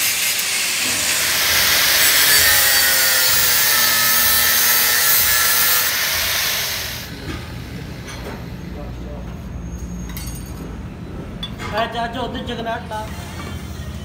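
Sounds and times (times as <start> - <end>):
angle grinder grinding metal: 0.0 - 7.1.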